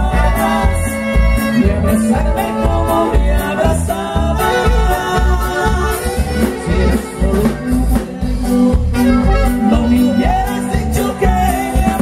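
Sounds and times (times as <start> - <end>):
latin dance band playing: 0.0 - 12.0
person singing: 0.0 - 12.0.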